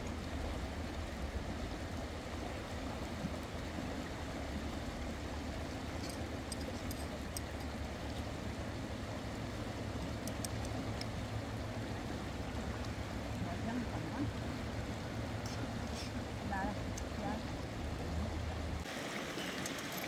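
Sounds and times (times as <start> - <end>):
stream water flowing: 0.0 - 20.0
faint light clicks: 10.2 - 11.2.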